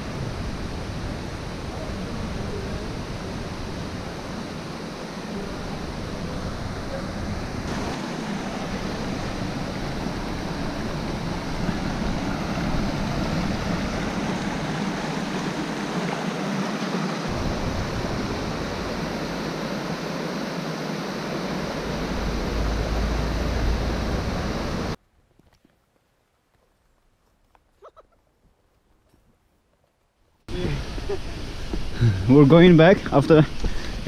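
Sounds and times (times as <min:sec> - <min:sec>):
stream rushing over stones: 0:00.0 - 0:25.0.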